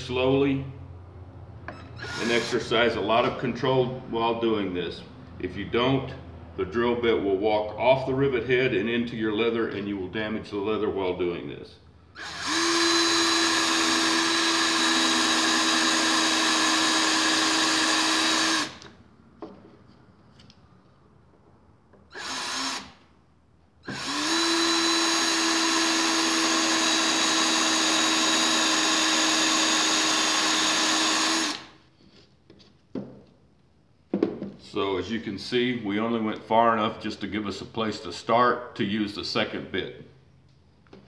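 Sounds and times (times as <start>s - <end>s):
cordless drill drilling metal: 1.8s - 3.0s, 12.2s - 19.0s, 22.1s - 23.0s, 23.8s - 31.8s.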